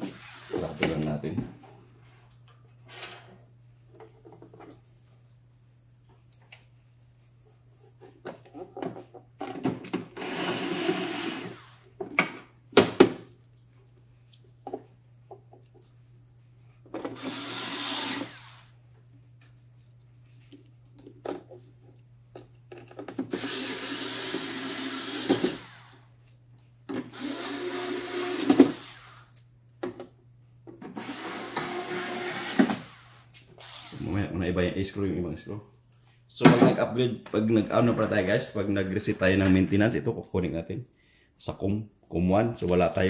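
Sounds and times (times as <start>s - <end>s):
cordless screwdriver whirring: 17.1s - 18.6s, 23.3s - 25.8s, 27.1s - 29.2s.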